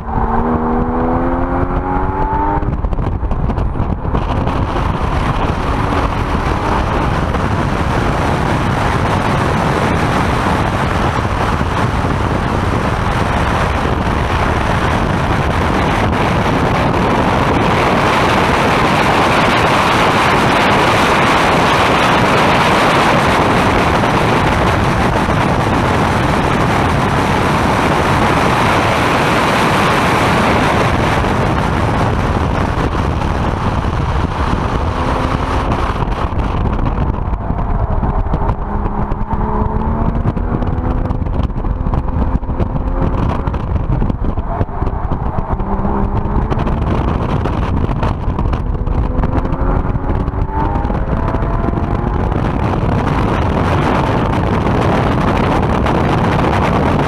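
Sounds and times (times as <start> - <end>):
car engine note: 0.0 - 19.0, 30.3 - 52.7
wind and road noise in car: 0.0 - 57.0.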